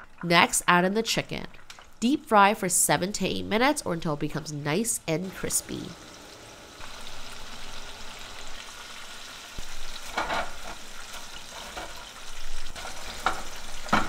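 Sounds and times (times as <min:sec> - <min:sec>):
chicken deep-frying in oil: 0:05.3 - 0:14.0.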